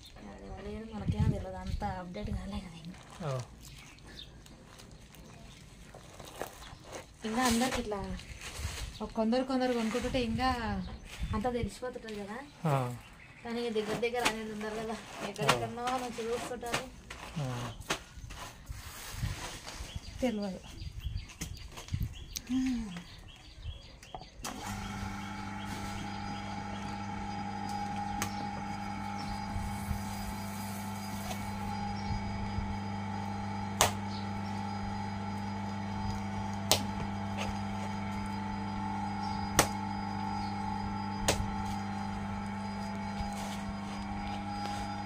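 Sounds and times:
potter's wheel motor humming: 24.4s - 45.0s.

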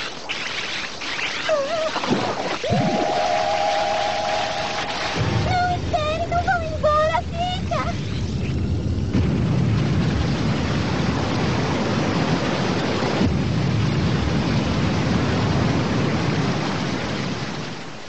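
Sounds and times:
cartoon rumbling noise: 1.0s - 12.2s.

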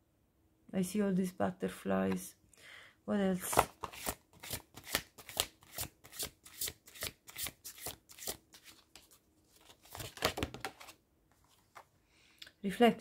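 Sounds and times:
cards being shuffled by hand: 3.4s - 11.9s.

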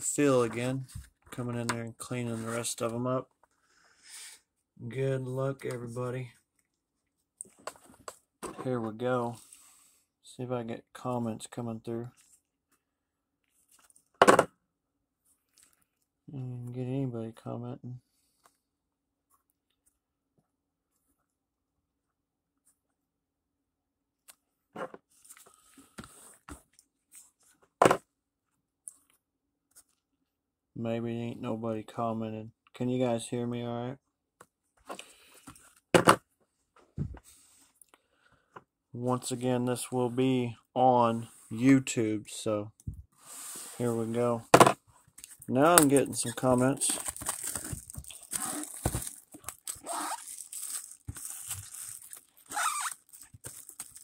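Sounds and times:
plastic wrap crinkling and tearing: 45.3s - 54.0s
cardboard box rustling: 46.6s - 52.1s.

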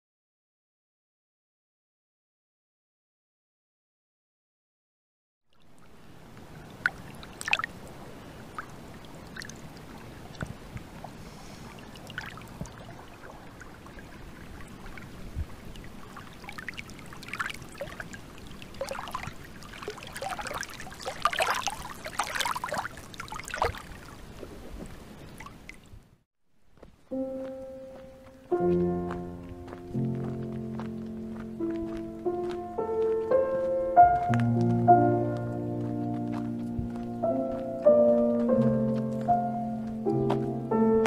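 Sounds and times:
small waves lapping on pebbles: 5.8s - 25.8s.

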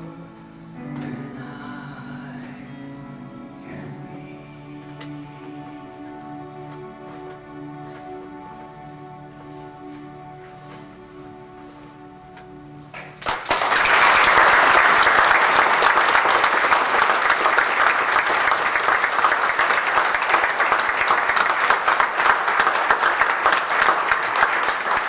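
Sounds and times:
held song notes: 0.0s - 25.0s
audience applause: 12.9s - 25.0s.

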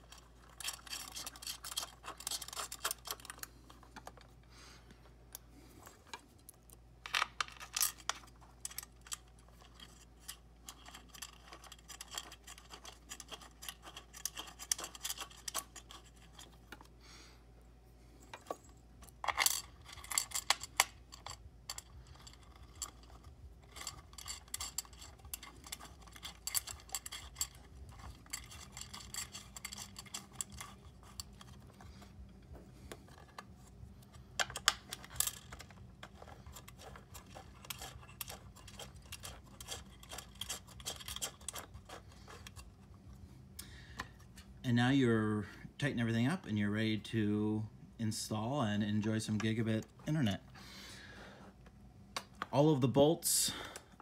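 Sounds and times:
metal bolts clicking and rattling: 0.0s - 4.3s, 6.1s - 16.9s, 18.3s - 42.9s.

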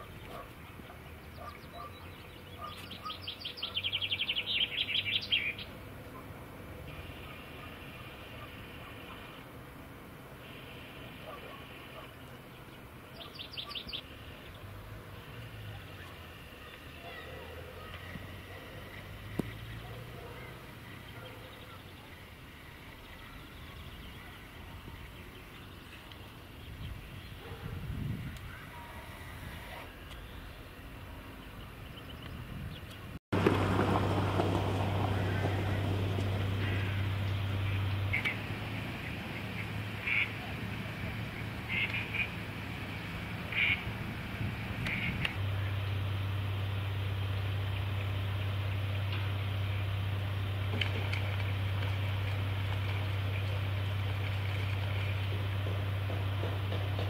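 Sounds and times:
songbird trilling: 0.0s - 5.7s, 10.8s - 14.6s, 39.4s - 40.4s, 43.5s - 43.9s
distant traffic rumble: 0.0s - 57.0s
faint bird chirps: 13.2s - 14.6s.

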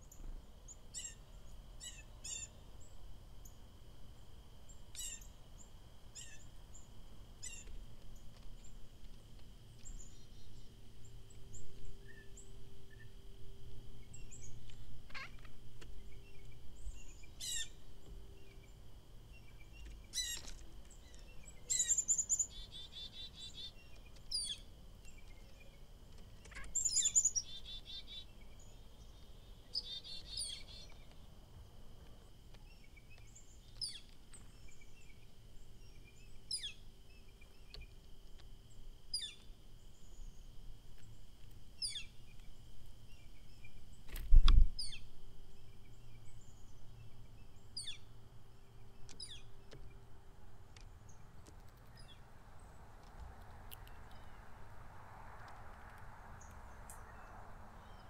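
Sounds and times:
buzzy bird trills: 0.0s - 3.6s, 4.7s - 7.8s, 14.0s - 31.2s, 32.7s - 38.0s
songbirds calling: 0.0s - 13.2s, 13.9s - 58.0s
faint high hum: 0.0s - 58.0s.

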